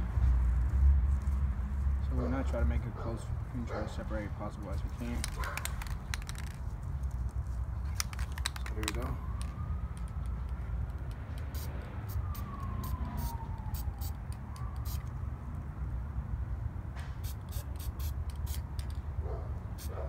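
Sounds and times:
faint distant siren: 0:08.6 - 0:16.9
spray can hissing bursts: 0:11.4 - 0:12.3, 0:17.2 - 0:18.9.

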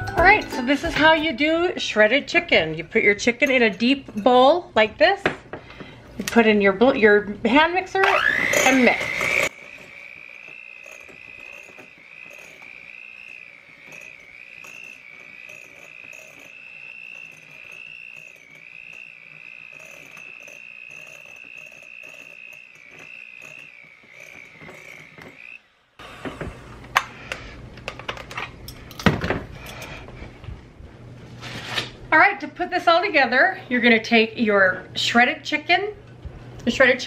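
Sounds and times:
electric hand mixer whining: 0:08.0 - 0:26.9.

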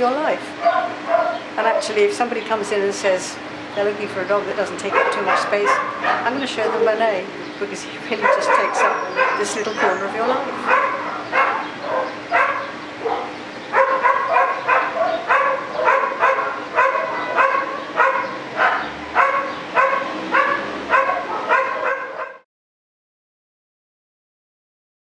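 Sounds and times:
dog barking: 0:00.6 - 0:02.0, 0:04.8 - 0:07.1, 0:08.2 - 0:22.4.

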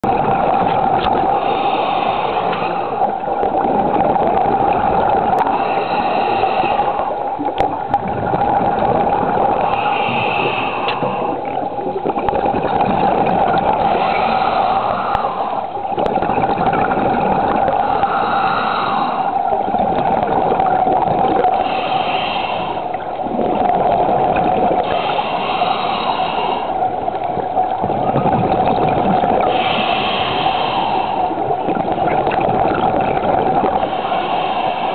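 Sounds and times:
steady hum: 0:00.0 - 0:34.9
scuba regulator breathing: 0:00.9 - 0:03.5, 0:05.1 - 0:07.6, 0:09.4 - 0:16.2, 0:16.8 - 0:19.9, 0:21.3 - 0:27.8, 0:29.2 - 0:32.1, 0:32.9 - 0:34.9.

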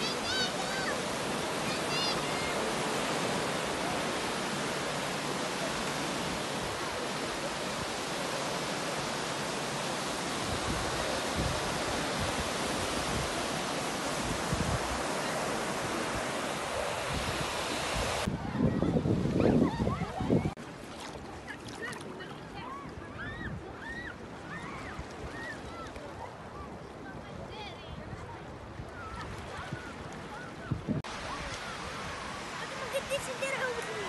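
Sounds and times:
surf washing up on beach: 0:00.0 - 0:34.0
wind buffeting microphone: 0:10.3 - 0:20.6.

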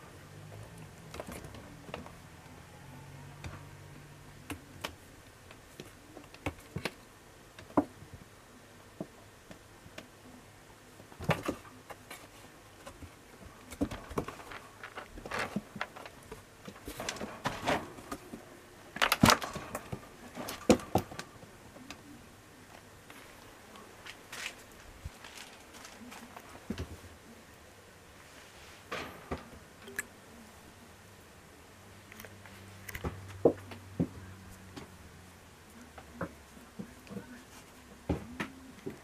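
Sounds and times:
clicks taps and rustles: 0:11.1 - 0:27.0.

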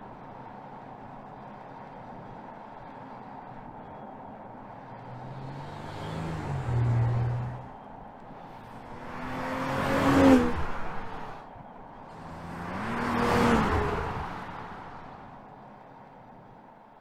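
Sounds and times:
car engine passing by: 0:04.9 - 0:07.8, 0:08.4 - 0:11.4, 0:12.1 - 0:15.3.

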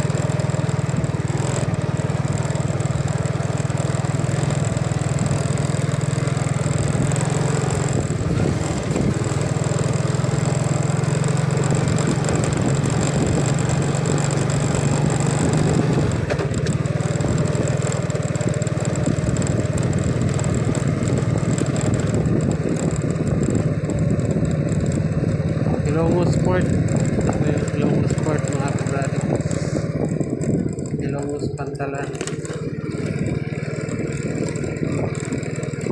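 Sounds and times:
motor scooter engine running: 0:00.0 - 0:35.9.

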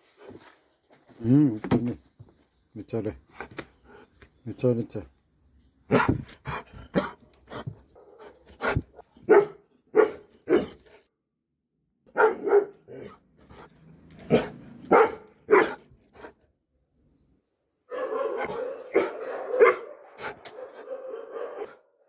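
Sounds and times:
dog barking: 0:05.9 - 0:06.2, 0:08.0 - 0:10.8, 0:12.1 - 0:13.2, 0:14.3 - 0:15.9, 0:17.9 - 0:22.0.

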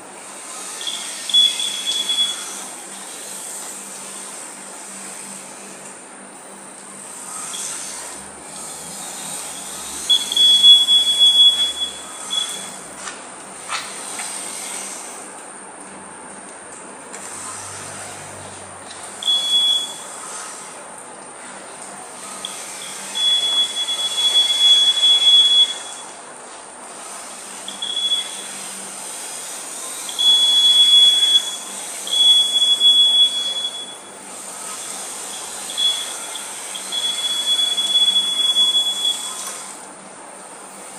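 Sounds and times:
high warning buzzer tone: 0:00.5 - 0:03.0, 0:07.3 - 0:12.9, 0:19.2 - 0:20.6, 0:22.2 - 0:26.2, 0:27.6 - 0:29.0, 0:29.8 - 0:39.8
high electronic beep: 0:10.1 - 0:12.8, 0:19.2 - 0:20.0, 0:22.4 - 0:26.1, 0:27.7 - 0:28.4, 0:30.1 - 0:34.1, 0:35.3 - 0:39.4.

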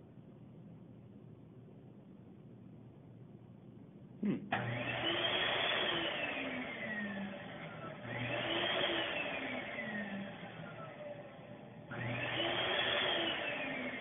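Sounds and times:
hand dryer blowing: 0:04.5 - 0:11.1, 0:11.9 - 0:14.0.

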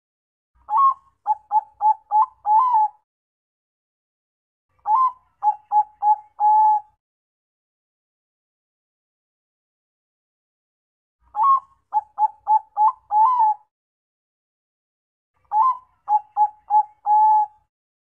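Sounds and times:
dove cooing: 0:00.7 - 0:03.0, 0:04.9 - 0:06.9, 0:11.4 - 0:13.7, 0:15.5 - 0:17.6.

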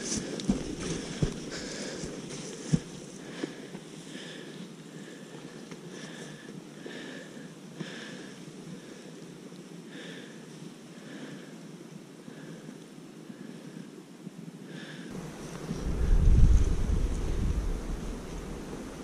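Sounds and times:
person breathing: 0:00.0 - 0:09.2, 0:09.9 - 0:11.6, 0:12.2 - 0:14.0, 0:14.7 - 0:15.2.

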